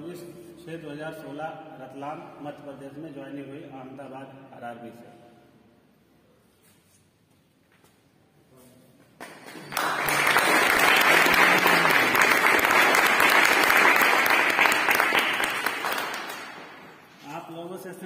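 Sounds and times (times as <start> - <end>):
crowd applauding: 9.2 - 17.0.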